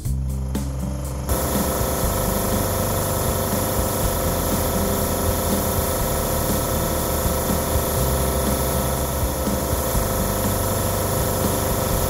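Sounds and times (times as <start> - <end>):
air compressor running: 0.0 - 12.0
airbrush spraying hiss: 0.0 - 12.0.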